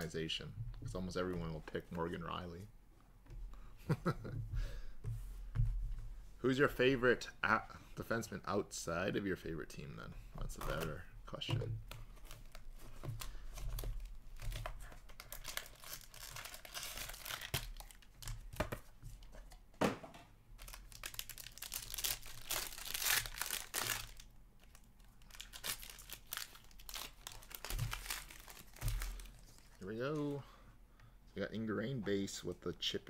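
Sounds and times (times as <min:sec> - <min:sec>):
foil wrapper crinkling and tearing: 0:15.0 - 0:18.4, 0:20.6 - 0:29.8.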